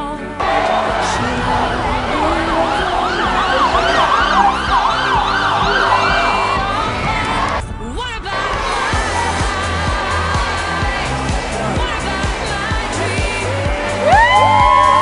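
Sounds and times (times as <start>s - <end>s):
siren yelping: 0.5s - 7.6s.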